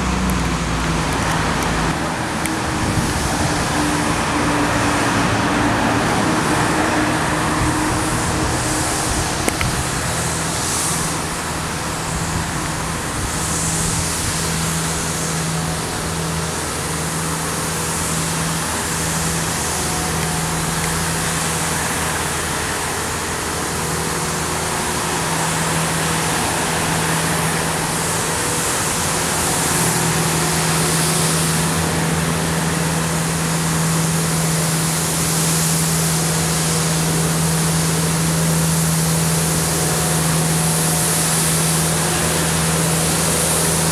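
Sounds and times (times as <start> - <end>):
brooms hissing on wet road: 0.0 - 43.9
diesel engine humming: 0.0 - 43.9.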